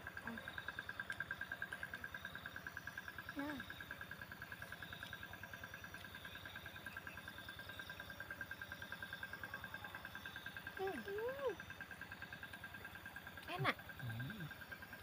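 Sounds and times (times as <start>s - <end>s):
insect trilling in pulses: 13.5s - 15.0s.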